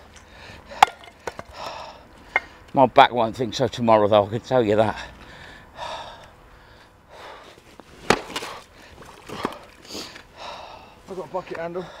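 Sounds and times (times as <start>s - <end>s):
man breathing and sniffing: 0.1s - 2.7s, 5.0s - 11.1s, 11.8s - 12.0s.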